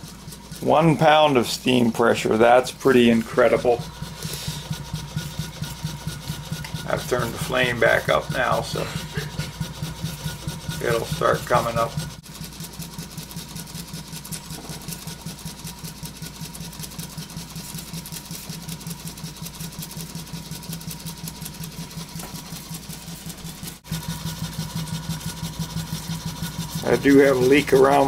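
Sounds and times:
model steam engine running: 0.0s - 28.0s.

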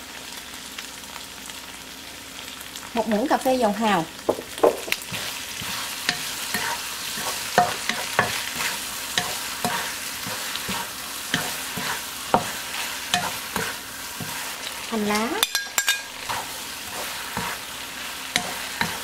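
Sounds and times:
food frying sizzle: 0.0s - 19.0s
spatula knocking and scraping wok: 4.2s - 19.0s.

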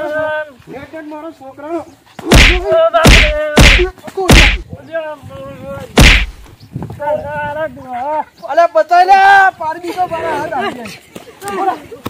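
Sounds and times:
sharp whacks: 2.2s - 4.6s, 6.0s - 6.5s.

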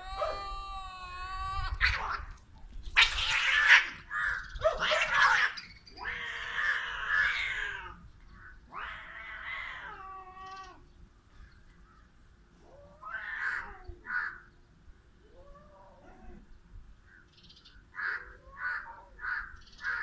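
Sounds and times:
cats screeching and yowling: 0.0s - 8.0s, 8.6s - 10.9s, 12.6s - 14.4s, 15.2s - 16.5s, 18.0s - 20.0s.

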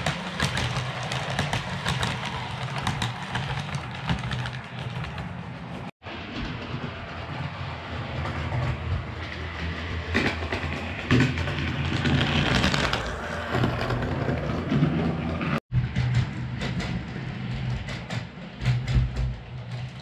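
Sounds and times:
model train rolling: 0.0s - 20.0s
wheels clicking over rail joints: 0.0s - 20.0s.

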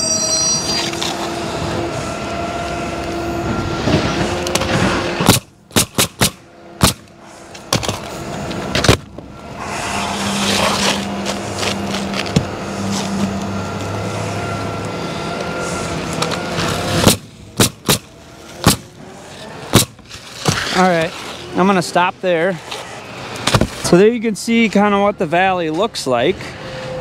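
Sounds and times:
steady low drone: 0.0s - 20.4s
nail gun shots: 5.2s - 7.1s, 17.0s - 18.9s, 19.7s - 19.9s.

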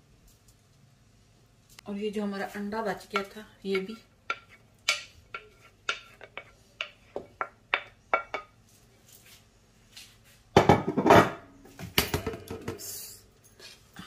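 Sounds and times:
stirring scraping in a wok: 3.0s - 8.5s.

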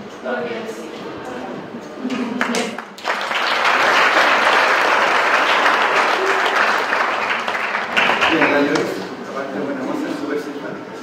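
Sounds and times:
audience applauding: 2.4s - 9.1s.

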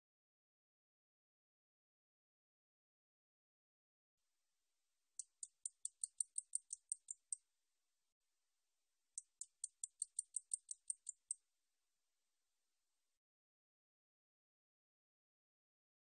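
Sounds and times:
katydid ticking: 5.2s - 7.4s, 9.2s - 11.4s.

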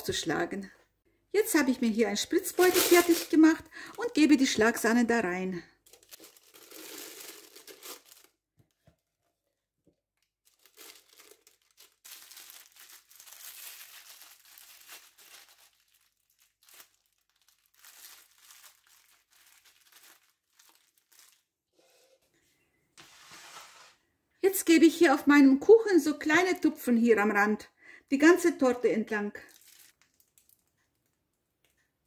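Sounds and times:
plastic piping bag crinkling: 1.8s - 5.0s, 5.8s - 8.5s, 10.2s - 21.6s, 29.3s - 31.2s.

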